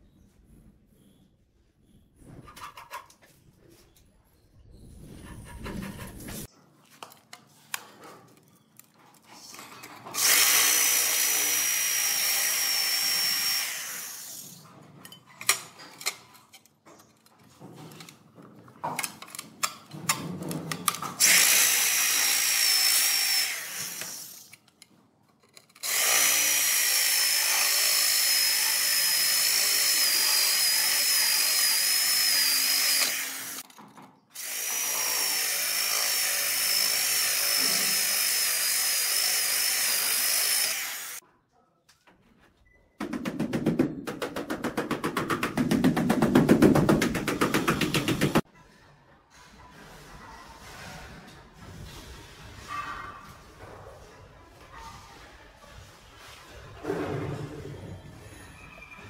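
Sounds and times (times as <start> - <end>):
drill grinding with high whine: 10.2 - 14.4, 21.2 - 24.4, 25.8 - 33.6, 34.4 - 41.2.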